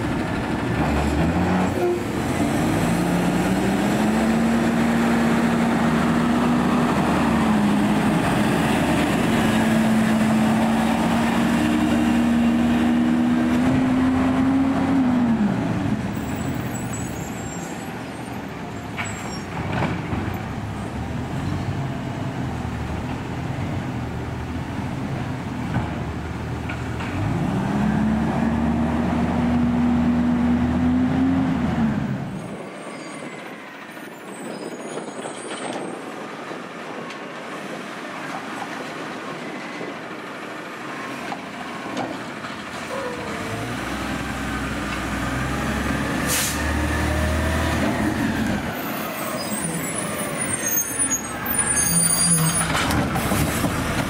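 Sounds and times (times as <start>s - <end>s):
garbage truck engine revving: 0.1s - 16.1s, 42.9s - 48.8s.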